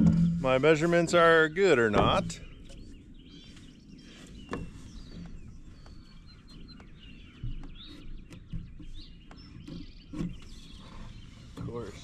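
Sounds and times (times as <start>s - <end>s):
small birds chirping: 0.0s - 12.0s
wooden board knocking: 1.9s - 2.5s.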